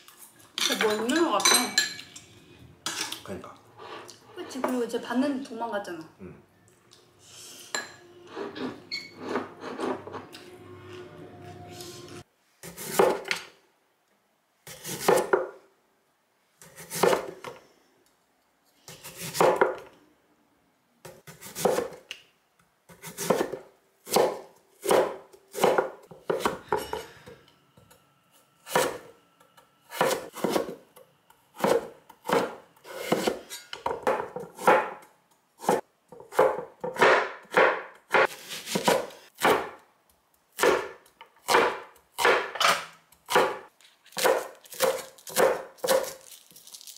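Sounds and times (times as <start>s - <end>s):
knife slicing vegetables: 14.7s - 15.4s, 21.2s - 22.1s, 22.9s - 26.6s, 29.9s - 30.8s, 31.5s - 33.5s, 35.6s - 39.8s, 43.2s - 46.2s.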